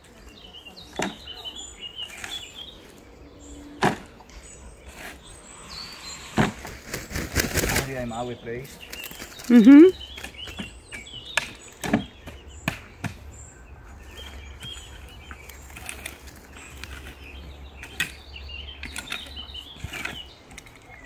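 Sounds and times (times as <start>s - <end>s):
shovel scraping soil: 4.8s - 6.7s, 14.7s - 18.2s, 18.8s - 21.0s.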